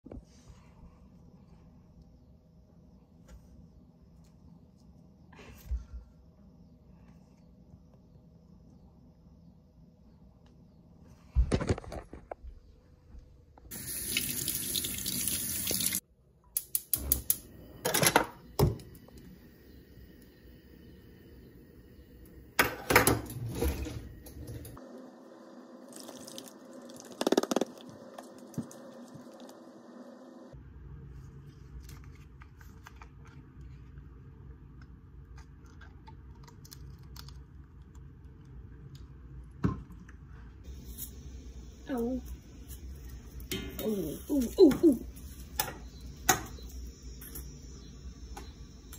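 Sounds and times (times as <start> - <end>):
tap water running: 13.7 - 16.0.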